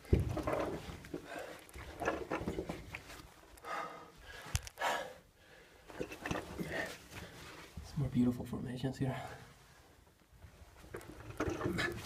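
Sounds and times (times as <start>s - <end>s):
person breathing hard: 1.2s - 1.8s, 3.6s - 5.9s.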